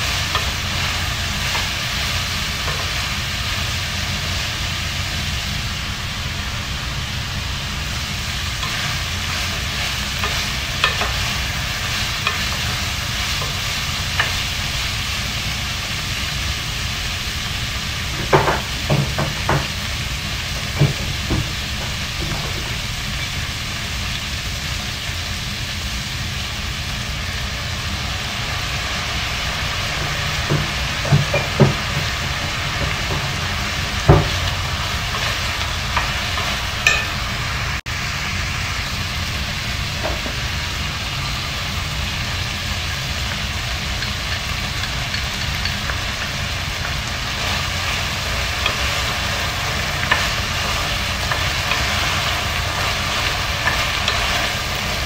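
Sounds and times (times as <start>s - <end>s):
food sizzling in a pot: 0.0s - 55.0s
wooden spoon knocking on pot: 18.2s - 19.7s, 30.5s - 32.2s.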